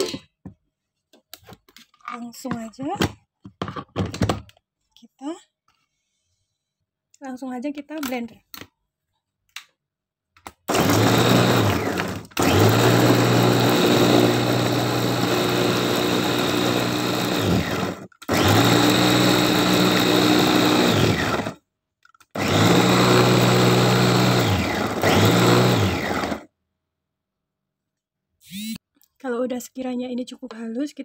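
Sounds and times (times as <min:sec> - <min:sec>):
electric food chopper grinding: 0:10.7 - 0:21.6, 0:22.3 - 0:26.5.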